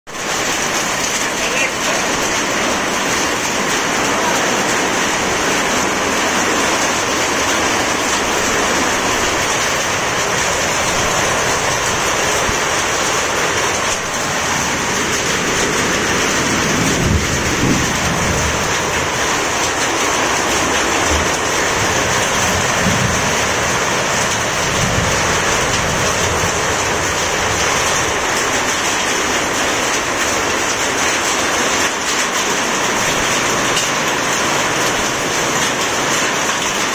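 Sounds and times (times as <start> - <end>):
heavy rain and hail: 0.1 - 36.9.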